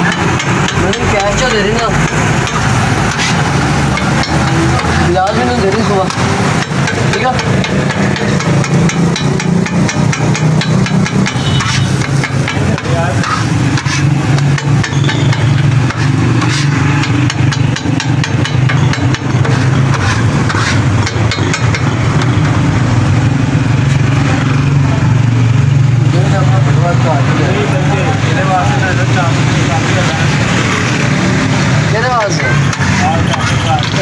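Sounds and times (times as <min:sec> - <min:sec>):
metal scraper scraping steel griddle: 0:00.0 - 0:22.4, 0:32.0 - 0:34.0.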